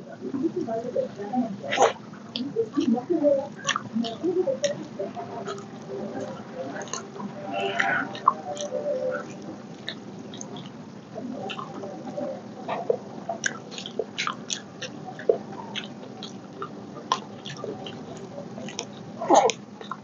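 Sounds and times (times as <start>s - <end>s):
person chewing with wet smacks: 3.5s - 20.0s.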